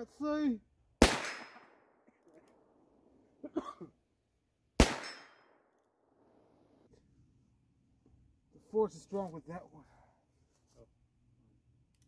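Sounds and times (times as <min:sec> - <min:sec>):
gunshots with echo: 0:01.0 - 0:01.9, 0:04.8 - 0:05.5.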